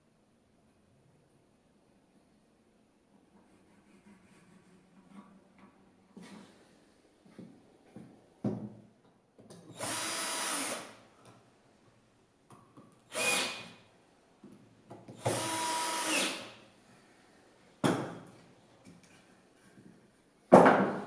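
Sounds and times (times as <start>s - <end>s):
drill driving screws into wood: 9.7s - 11.0s, 13.1s - 13.8s, 15.2s - 16.6s.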